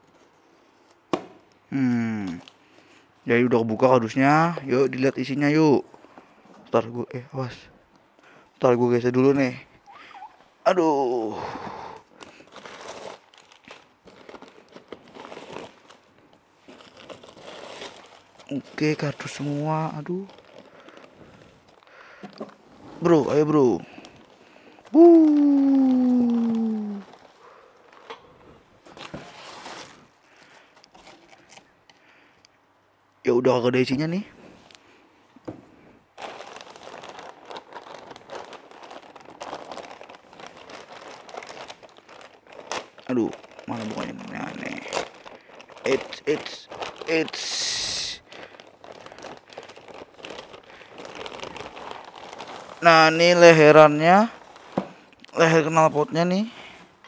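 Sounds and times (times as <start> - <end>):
packing material rustling: 12.0 - 32.1, 36.0 - 57.0
plastic wrapping crinkling: 12.0 - 32.2, 36.1 - 57.0.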